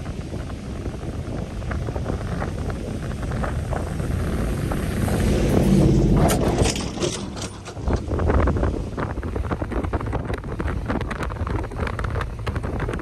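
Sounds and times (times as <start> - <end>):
wheels clicking and hissing: 0.0 - 13.0
wind buffeting microphone: 0.0 - 13.0
pickup truck engine passing: 3.9 - 8.4.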